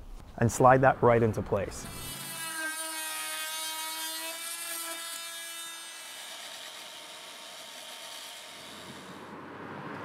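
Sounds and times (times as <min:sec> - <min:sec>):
power drill boring into wood: 0:01.8 - 0:09.3
orbital sander running: 0:01.8 - 0:09.4.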